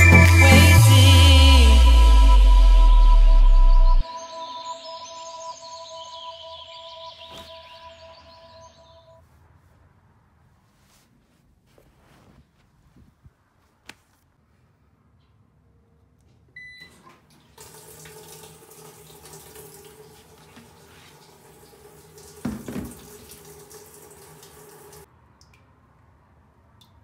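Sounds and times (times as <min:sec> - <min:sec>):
low hum: 0:00.0 - 0:09.2
washing machine beep: 0:04.1 - 0:09.1, 0:16.6 - 0:17.1
water rushing into tub: 0:17.3 - 0:25.1.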